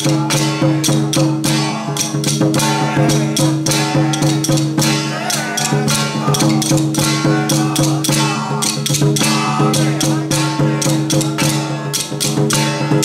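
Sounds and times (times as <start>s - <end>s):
quick percussion strikes: 0.0s - 13.0s
wavering melody: 2.6s - 10.4s.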